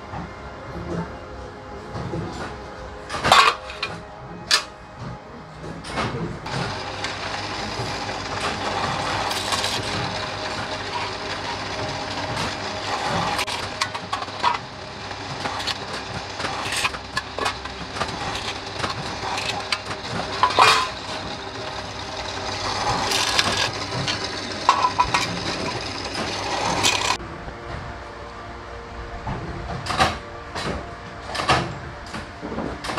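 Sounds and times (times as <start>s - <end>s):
drill press motor hum: 6.4s - 27.2s
drill drilling through aluminium: 6.5s - 27.2s.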